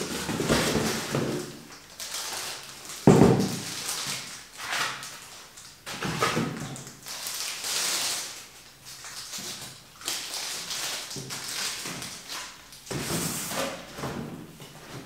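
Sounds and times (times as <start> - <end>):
cardboard scraping and rustling: 0.0 - 1.5, 12.9 - 15.0.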